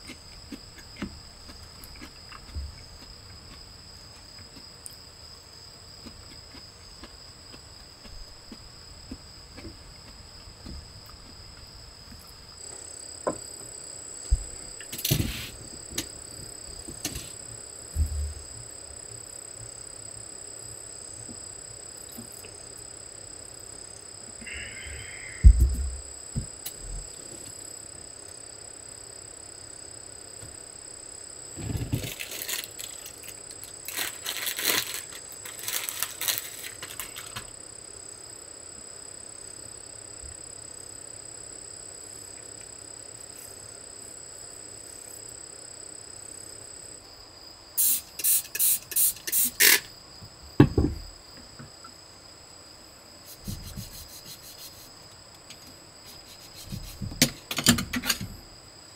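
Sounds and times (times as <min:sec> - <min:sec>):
sharp thump: 0:14.3 - 0:15.5, 0:25.4 - 0:26.5, 0:50.6 - 0:51.0
rustling: 0:14.3 - 0:17.4, 0:31.5 - 0:37.5
knocks and clatters on wooden table: 0:50.6 - 0:51.0, 0:56.7 - 0:58.3.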